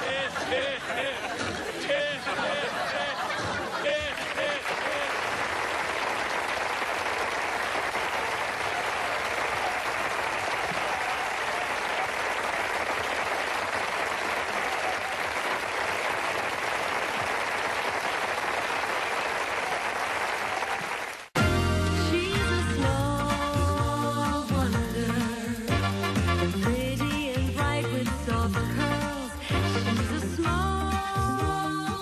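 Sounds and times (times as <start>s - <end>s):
audience applauding: 0.0s - 21.6s
music: 21.4s - 32.0s.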